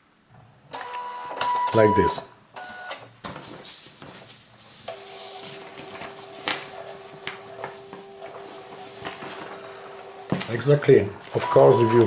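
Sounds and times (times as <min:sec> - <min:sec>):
printer motor hum: 0:04.9 - 0:12.0.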